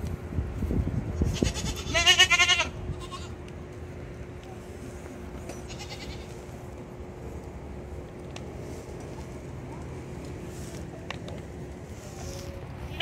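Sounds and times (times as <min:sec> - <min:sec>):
goat bleating: 0:01.2 - 0:03.4, 0:05.5 - 0:06.4.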